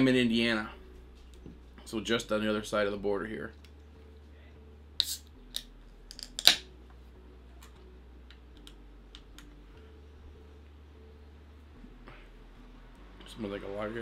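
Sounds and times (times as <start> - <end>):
can opening with hiss: 5.0 - 6.7.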